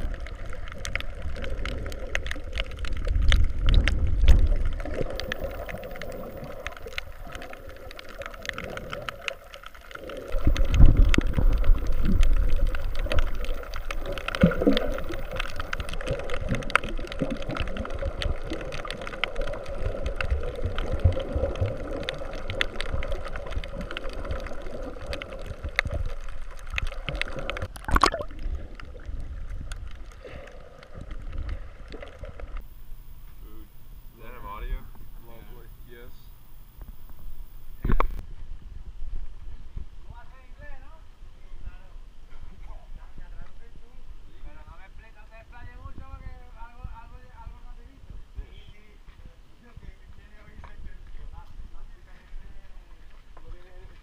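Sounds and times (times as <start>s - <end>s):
muffled underwater sloshing: 0.0s - 38.2s.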